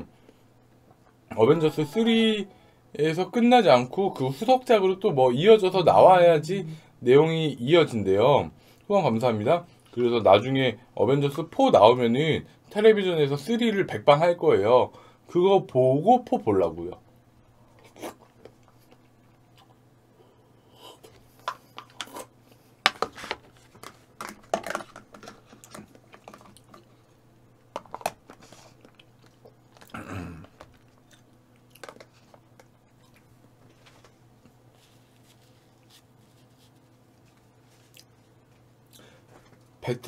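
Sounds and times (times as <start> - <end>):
chewing and crunching food: 17.6 - 19.8, 20.8 - 36.3, 36.9 - 39.7.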